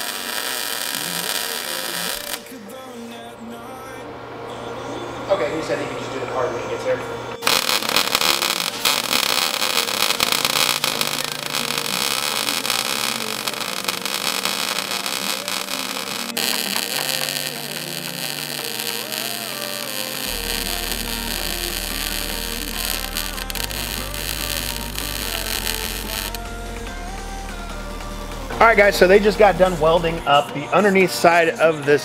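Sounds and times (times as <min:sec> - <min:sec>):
welder arc crackling: 0:00.0 - 0:02.6, 0:07.4 - 0:30.1.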